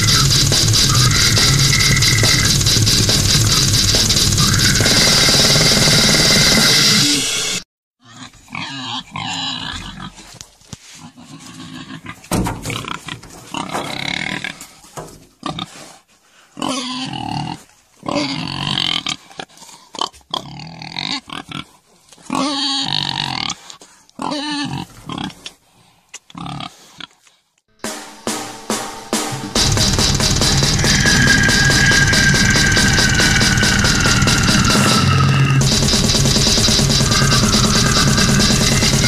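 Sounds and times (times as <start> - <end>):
pigs squealing and grunting: 0.0 - 3.8, 4.4 - 5.4, 8.0 - 10.4, 11.0 - 14.8, 16.6 - 25.5, 26.3 - 27.2, 30.8 - 35.6, 36.9 - 39.0.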